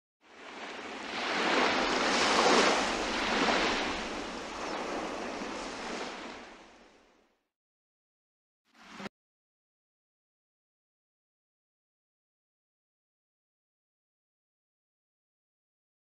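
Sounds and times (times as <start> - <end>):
rushing surf-like noise: 1.3 - 6.8.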